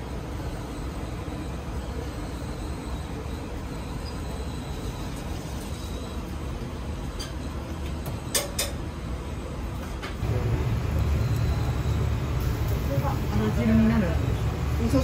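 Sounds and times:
kitchen low rumble: 10.2 - 15.0.

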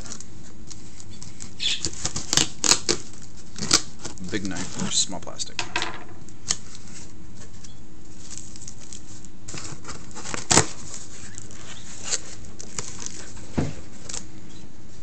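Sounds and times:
cardboard rustling and scraping: 0.0 - 5.2, 6.6 - 14.2.

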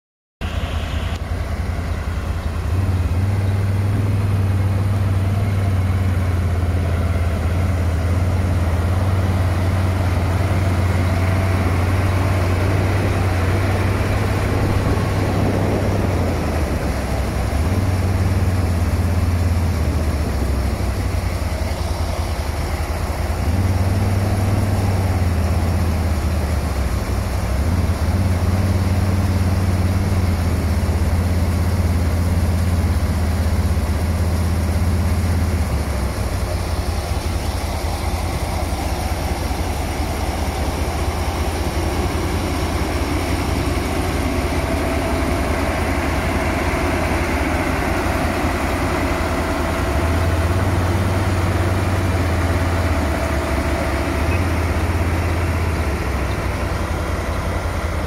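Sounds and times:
deep engine hum: 0.4 - 58.0.

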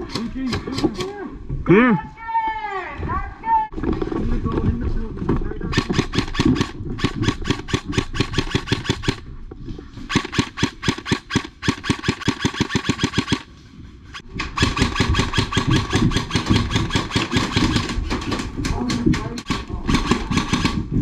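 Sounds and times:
airsoft gun full-auto fire: 5.7 - 9.2, 10.1 - 13.5, 14.6 - 18.0, 19.5 - 20.9.

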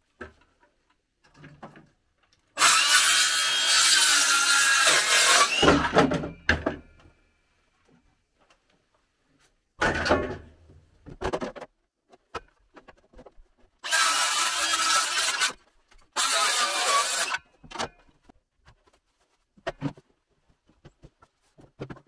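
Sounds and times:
circular saw cutting wood: 2.6 - 5.9, 13.8 - 15.6, 16.2 - 17.4.

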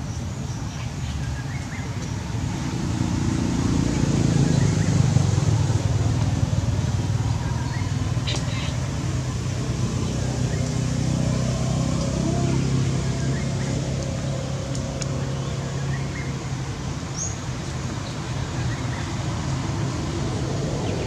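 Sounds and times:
low engine hum: 0.0 - 21.0.

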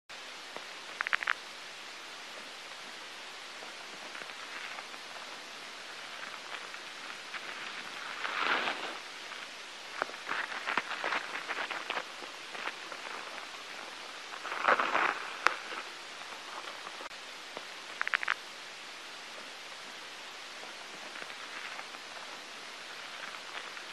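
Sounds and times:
crackling rustle: 0.1 - 23.9
steady hiss: 0.1 - 23.9
small irregular clicks: 0.5 - 1.6, 2.3 - 18.5.

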